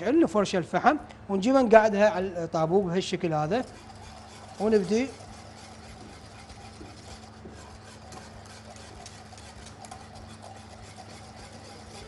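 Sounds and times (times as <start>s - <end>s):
wire whisk stirring liquid: 2.5s - 12.0s
whisk scraping and clicking on pot: 3.0s - 12.0s.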